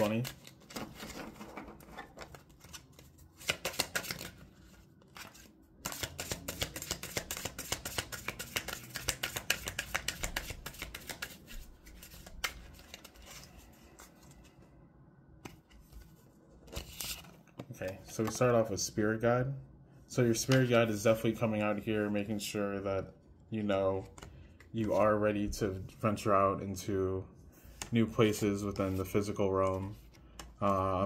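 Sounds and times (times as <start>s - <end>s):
cards being shuffled: 0.0s - 14.5s, 15.4s - 18.6s.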